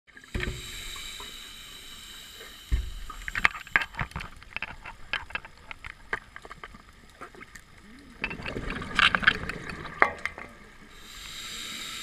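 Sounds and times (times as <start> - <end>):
diver inhaling through regulator: 0.4 - 4.0, 10.9 - 12.0
crackling popping bubbles: 2.7 - 10.9.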